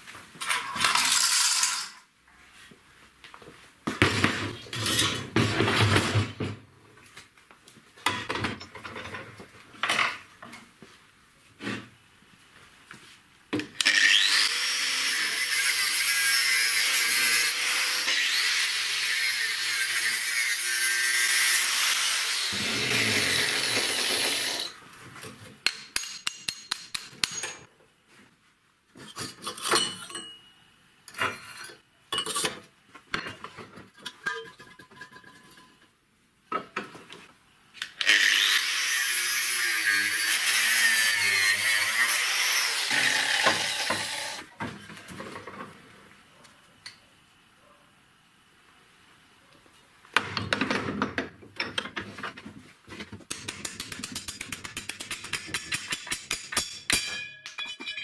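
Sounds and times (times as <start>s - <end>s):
angle grinder cutting steel: 13.8s - 24.8s, 38.0s - 44.4s.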